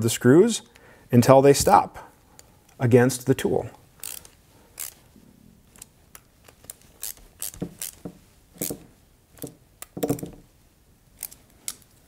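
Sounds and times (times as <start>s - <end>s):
small metal clicks and scrapes: 4.0s - 5.0s, 11.2s - 12.0s.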